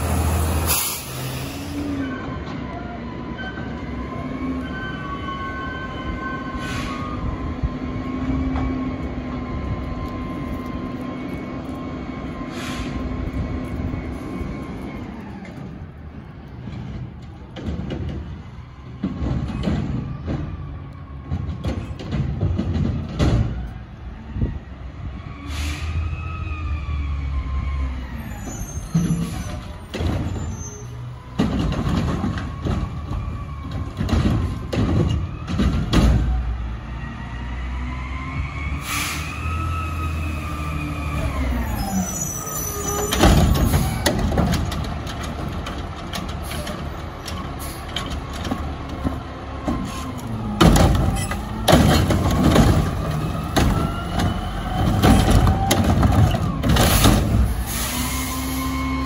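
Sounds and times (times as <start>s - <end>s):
diesel truck engine revving: 0.0s - 2.1s.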